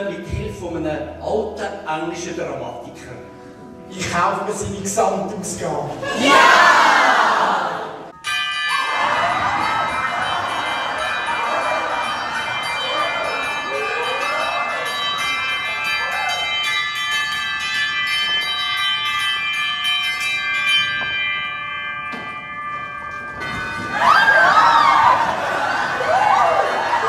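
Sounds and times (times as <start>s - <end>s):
people shrieking and laughing: 6.0s - 8.0s, 8.8s - 16.6s, 23.9s - 27.0s
bells ringing in a peal: 8.1s - 27.0s.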